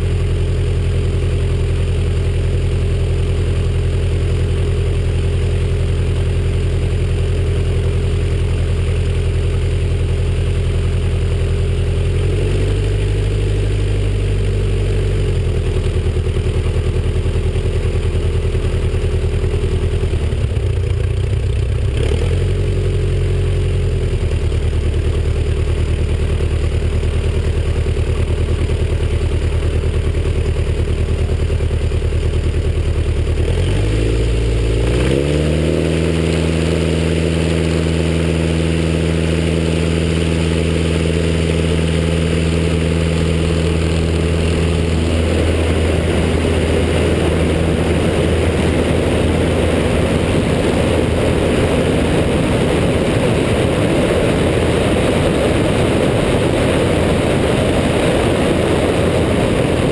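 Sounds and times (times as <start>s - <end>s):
biplane engine running: 0.0s - 59.9s
wind rushing on camera: 33.8s - 59.9s.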